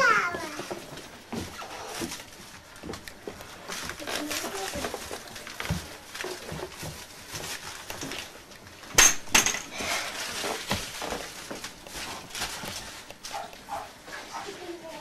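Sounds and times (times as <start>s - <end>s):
rustling: 0.0s - 8.9s, 9.7s - 15.0s.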